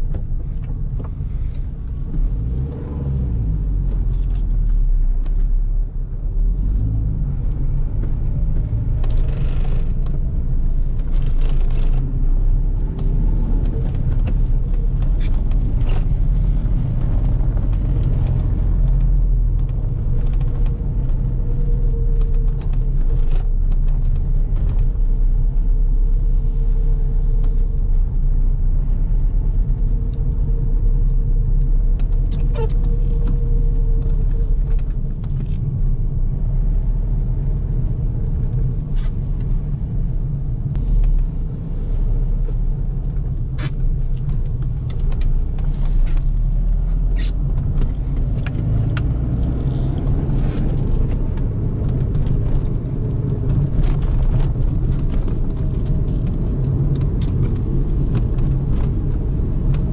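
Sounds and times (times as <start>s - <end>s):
car engine and road rumble: 0.0s - 59.9s
small clicks and rattles: 7.4s - 25.7s.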